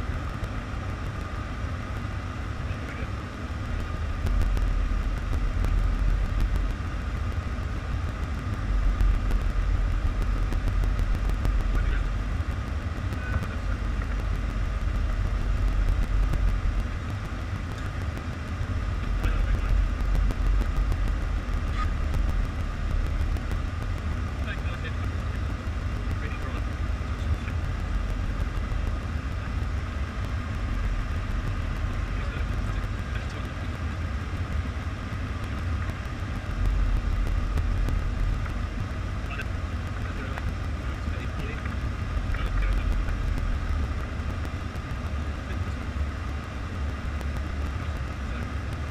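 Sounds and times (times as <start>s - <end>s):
airflow and engine rumble: 0.0s - 48.9s.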